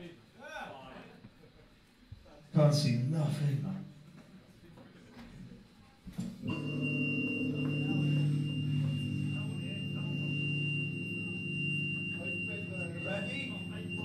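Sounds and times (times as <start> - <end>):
low amp hum: 6.1 - 14.0
high-pitched feedback whine: 6.4 - 14.0.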